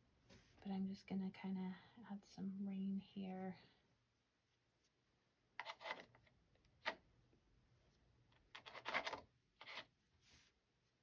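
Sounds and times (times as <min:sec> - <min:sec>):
brush strokes on paper: 0:10.0 - 0:11.0.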